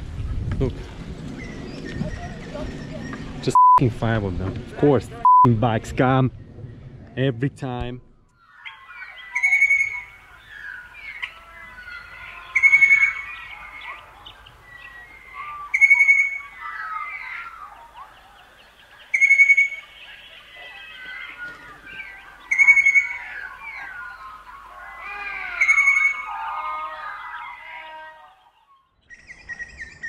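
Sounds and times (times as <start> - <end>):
chorus of bird chirps: 1.3 - 3.8, 8.0 - 30.0
bird whistled call: 8.4 - 18.2, 19.1 - 24.7.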